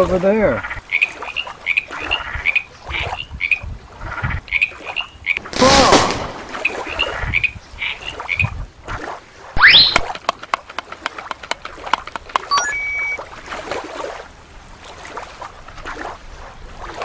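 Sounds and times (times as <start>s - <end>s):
frog croaking: 0.5s - 5.5s, 6.5s - 8.6s
rising run of beeps: 9.6s - 10.0s, 12.4s - 13.2s
scattered clicks: 9.9s - 13.2s.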